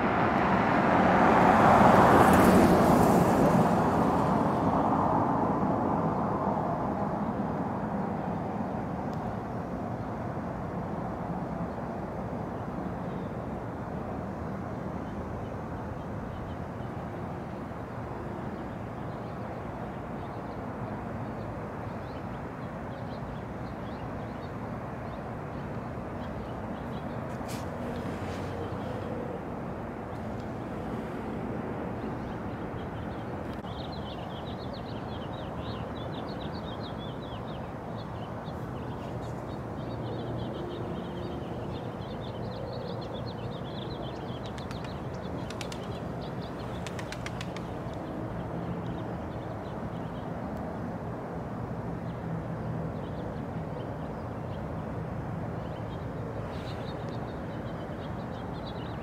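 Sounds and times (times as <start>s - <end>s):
small birds chirping: 32.0s - 50.3s, 55.6s - 59.0s
quick run of clicks: 44.4s - 46.0s, 46.7s - 48.1s.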